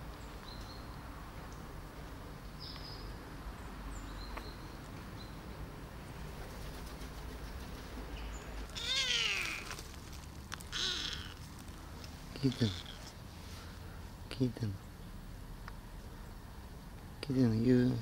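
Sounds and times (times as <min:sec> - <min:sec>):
kitten meowing: 0:08.7 - 0:09.7, 0:10.7 - 0:11.4.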